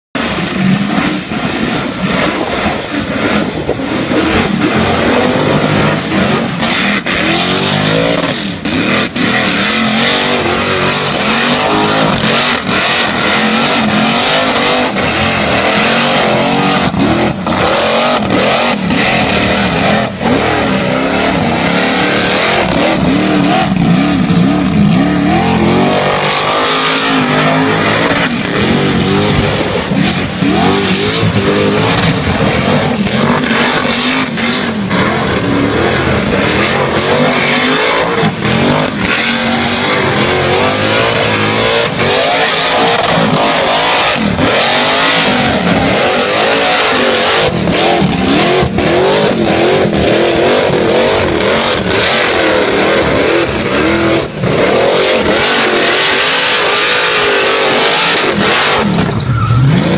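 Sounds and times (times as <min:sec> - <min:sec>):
car engine revving: 0:00.0 - 0:59.9
tyres squealing on concrete: 0:32.8 - 0:59.9.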